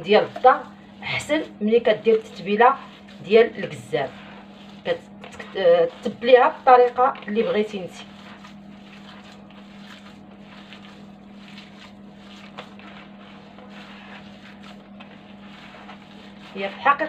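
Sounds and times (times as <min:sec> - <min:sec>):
hands kneading minced meat: 0:00.0 - 0:17.0
steady low hum: 0:00.0 - 0:17.0.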